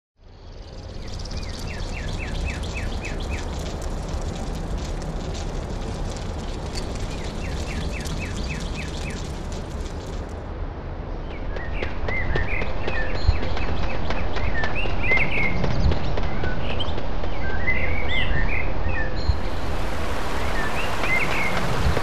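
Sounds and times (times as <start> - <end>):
bird chirping: 0.2 - 10.3, 19.2 - 22.0
campfire crackling: 0.2 - 10.5, 19.4 - 22.0
outdoor hiss: 19.4 - 22.0.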